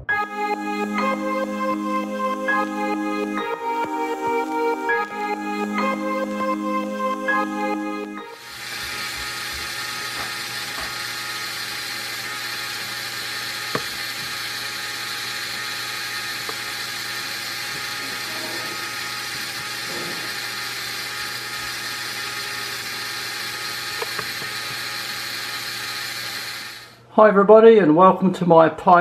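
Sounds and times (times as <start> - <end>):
electric motor and plastic gears whirring: 8.3 - 27.0.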